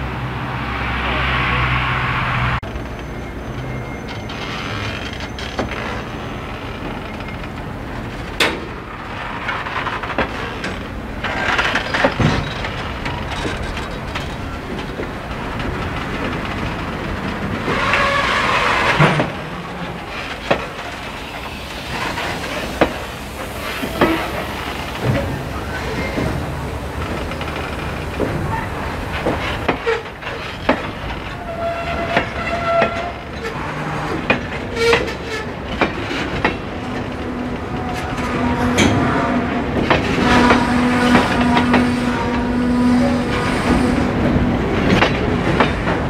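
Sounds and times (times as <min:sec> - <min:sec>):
train wheels rumbling on rails: 0:00.0 - 0:46.0
wheels clicking over rail joints: 0:02.6 - 0:46.0.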